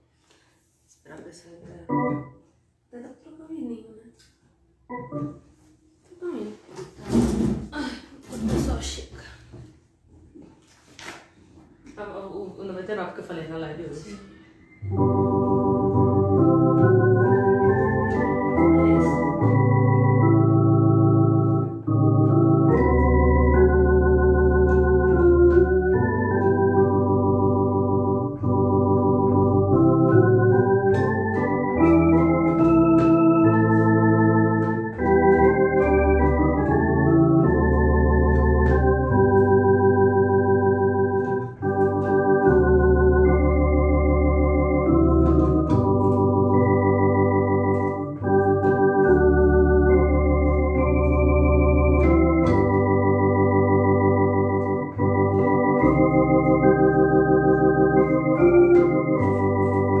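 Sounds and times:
electronic organ playing a hymn: 1.9 - 2.6, 4.9 - 5.7, 14.7 - 60.0.

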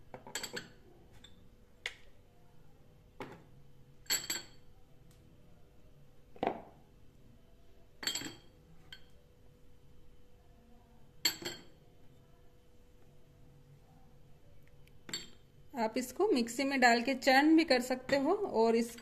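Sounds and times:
glass bowls clinking: 8.0 - 9.1, 15.1 - 15.4.

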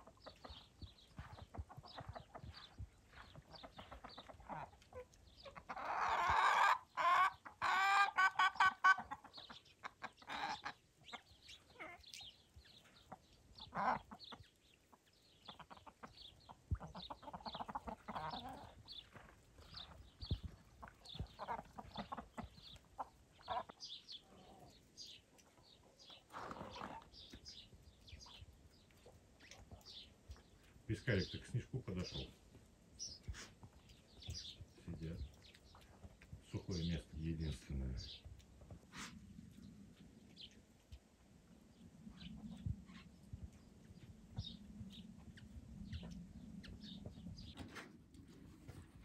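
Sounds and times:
chickens clucking: 0.0 - 41.0, 41.7 - 44.6, 45.3 - 49.0.

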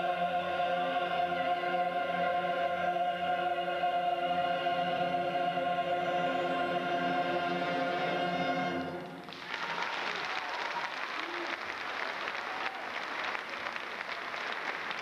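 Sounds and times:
opera chorus holding a chord: 0.0 - 9.2.

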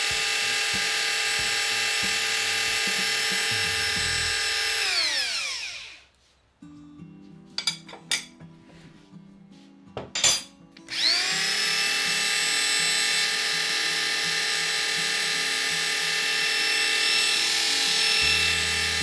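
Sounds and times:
electric drill spinning under load: 0.0 - 6.1, 10.9 - 19.0.

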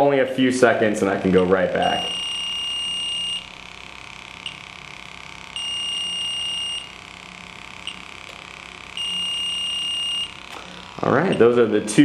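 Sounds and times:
high-pitched alarm tone: 1.8 - 3.7, 5.5 - 7.0, 8.9 - 11.5.

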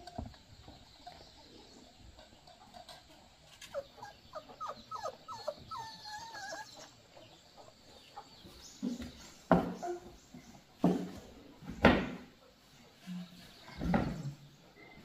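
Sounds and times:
puppy whimpering: 3.7 - 7.2.

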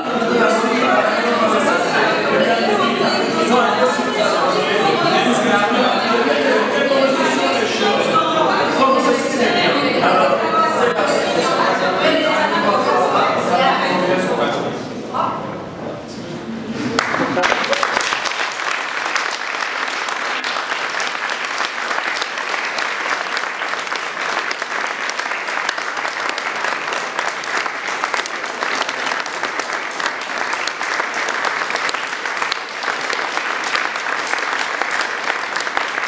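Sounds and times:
audience clapping: 16.9 - 36.0.

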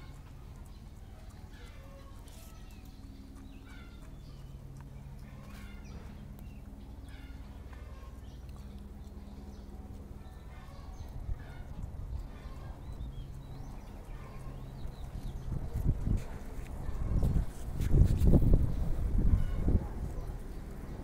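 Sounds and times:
dog chewing and smacking: 0.0 - 18.3
steady low hum: 0.0 - 21.0.

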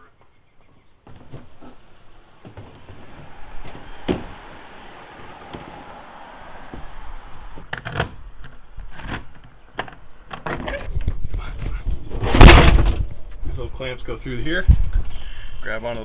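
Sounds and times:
knocks and clatters: 1.1 - 11.2.

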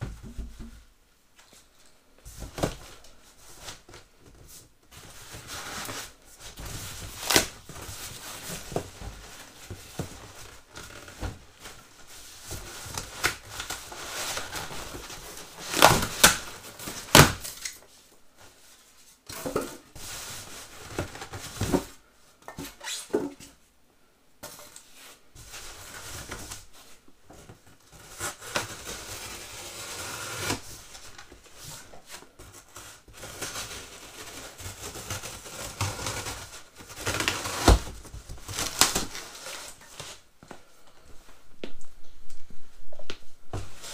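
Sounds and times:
packing rustling in cardboard box: 2.3 - 19.0, 25.0 - 40.3.

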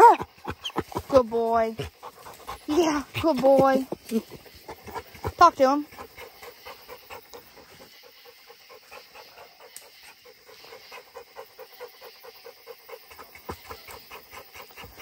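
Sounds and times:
dog panting fast: 0.0 - 15.0.

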